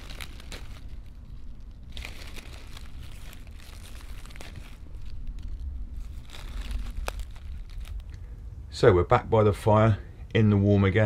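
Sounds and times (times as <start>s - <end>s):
rustling in dry leaf litter: 0.0s - 8.4s
low steady rumble: 0.0s - 11.0s.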